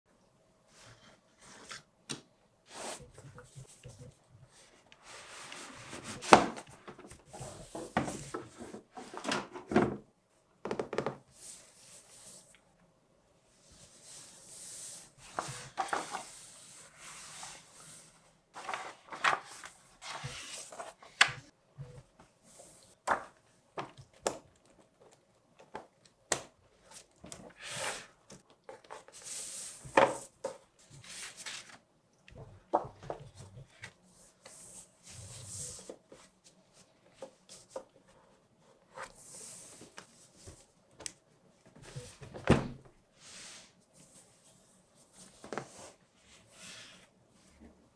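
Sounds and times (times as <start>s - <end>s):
paper and card rustling: 18.6s - 21.3s.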